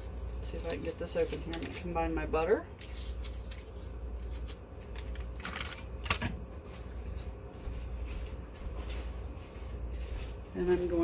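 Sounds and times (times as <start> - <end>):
cardboard and paper crinkling: 0.0 - 1.9, 2.7 - 5.9
low steady hum: 0.0 - 11.0.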